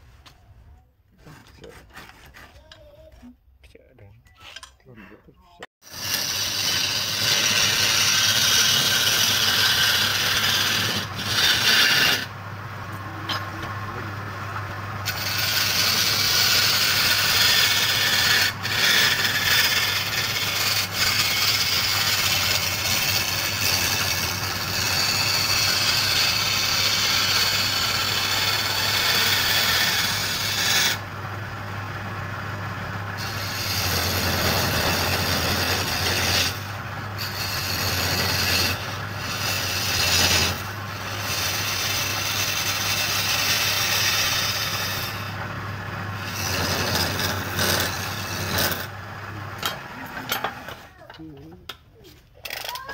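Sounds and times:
lathe tool scraping wood: 1.2 - 2.7, 5.8 - 50.9
lathe motor hum: 5.9 - 50.8.

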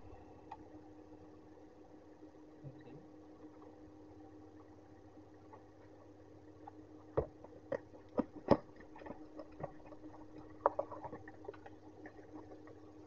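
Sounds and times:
steady low hum: 0.0 - 13.0
cardboard box knocks and flap snaps: 7.2 - 9.2.

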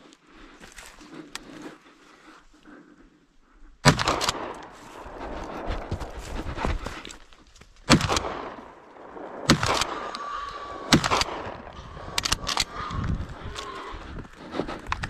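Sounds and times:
shotgun shots echoing: 3.8 - 5.0, 7.8 - 12.7.

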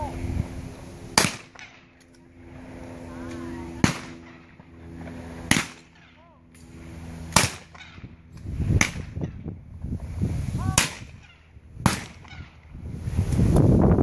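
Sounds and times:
low rumbling noise: 0.0 - 14.0
shotgun shots: 1.2 - 1.8, 3.8 - 4.6, 5.4 - 6.1, 7.3 - 8.0, 10.8 - 12.6.

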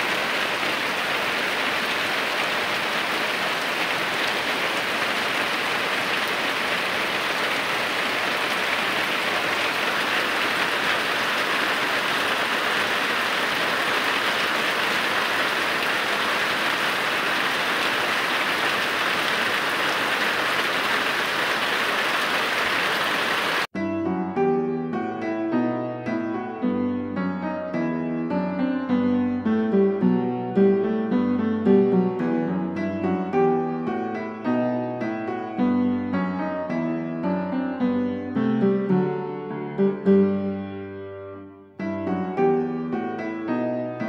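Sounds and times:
rain falling on water: 0.0 - 23.7
piano music: 23.8 - 44.0.

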